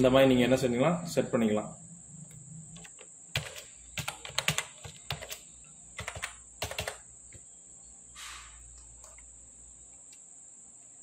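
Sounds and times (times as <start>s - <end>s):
short soft hiss: 8.1s - 8.7s.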